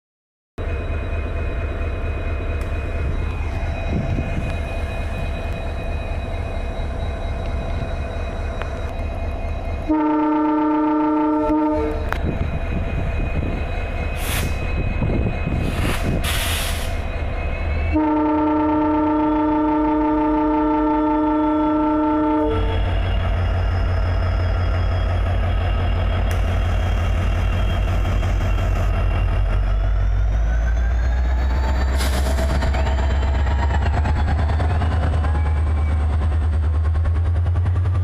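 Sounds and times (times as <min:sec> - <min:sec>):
diesel locomotive engine rumbling: 0:00.6 - 0:38.0
multi-note locomotive horn: 0:09.8 - 0:12.2, 0:17.9 - 0:23.0
short hisses: 0:15.8 - 0:17.0.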